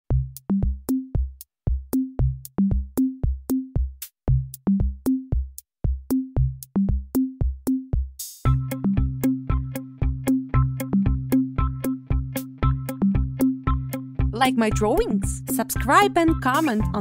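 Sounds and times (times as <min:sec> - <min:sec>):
upbeat electronic music: 0:08.5 - 0:17.0.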